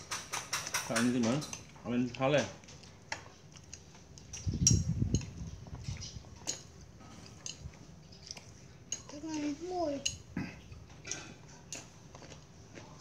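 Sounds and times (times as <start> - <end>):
utensils clinking on ceramic dishes: 0.0 - 1.7, 6.4 - 8.3.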